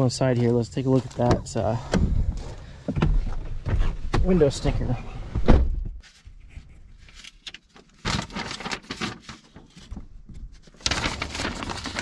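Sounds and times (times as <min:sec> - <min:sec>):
rustling and handling noises: 0:06.0 - 0:12.0.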